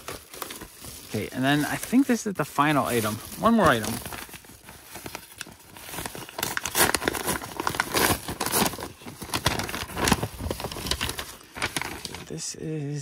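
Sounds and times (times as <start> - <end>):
paper envelope crinkling: 0.0 - 12.3.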